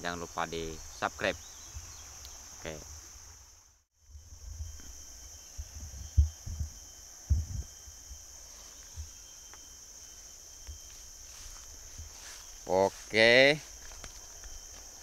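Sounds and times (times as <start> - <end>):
insects chirring: 0.0 - 15.0
dull low thumps: 5.6 - 7.7.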